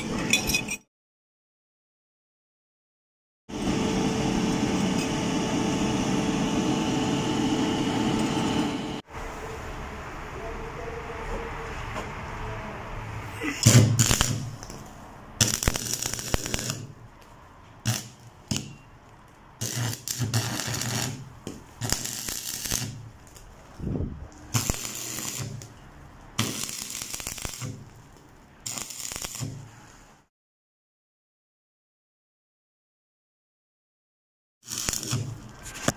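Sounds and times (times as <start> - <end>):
welding arc crackling and sizzling: 13.7 - 30.0, 34.6 - 35.9.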